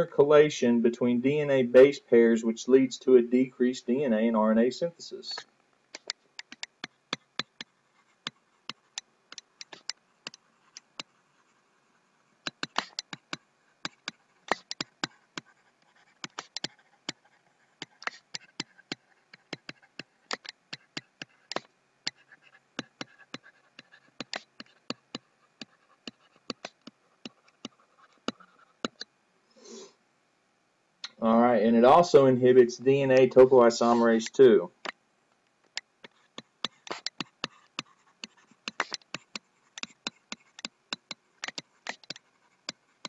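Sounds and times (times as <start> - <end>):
scratchy pen strokes: 5.4 - 29.9, 35.7 - 43.0
stylus tapping on tablet: 6.0 - 11.1, 12.4 - 15.5, 16.1 - 17.2, 17.8 - 29.1, 35.7 - 42.8.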